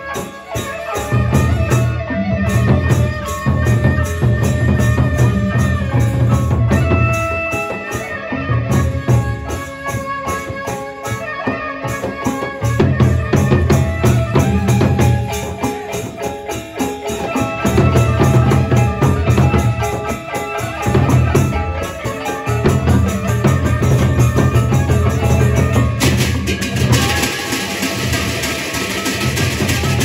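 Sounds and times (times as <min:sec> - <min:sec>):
cymbals clashing: 0:00.0 - 0:30.0
large drums beaten heavily: 0:02.5 - 0:10.0, 0:12.2 - 0:30.0
small gongs ringing: 0:14.4 - 0:30.0.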